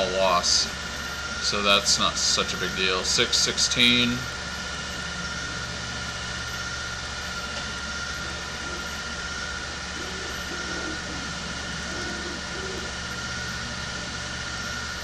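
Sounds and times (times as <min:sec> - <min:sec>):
low electrical hum: 0:00.0 - 0:15.0
thin steady whine: 0:00.0 - 0:15.0.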